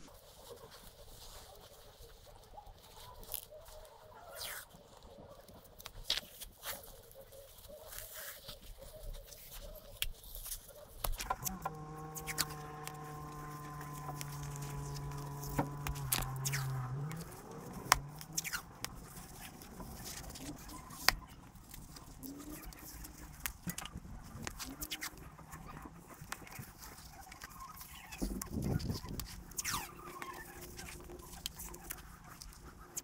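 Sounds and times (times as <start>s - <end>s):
packing wool rustling and crackling: 0.0s - 33.0s
sharp clicks and snaps: 9.9s - 33.0s
low droning tone: 11.3s - 33.0s.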